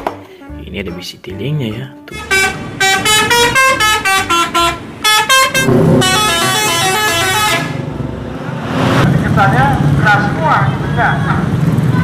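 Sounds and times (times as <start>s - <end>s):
bus musical horn playing a tune: 2.0s - 7.8s
road traffic: 2.1s - 12.0s.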